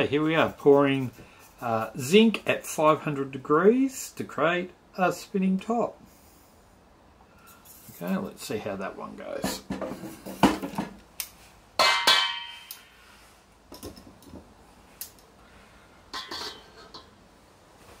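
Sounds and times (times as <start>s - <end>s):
metal objects clanking: 11.8s - 12.8s, 16.1s - 17.2s.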